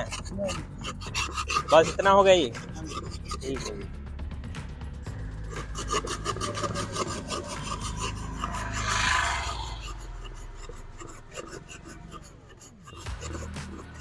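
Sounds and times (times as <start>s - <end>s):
ice rasping over shaving blade: 0.0s - 3.9s, 5.4s - 14.0s.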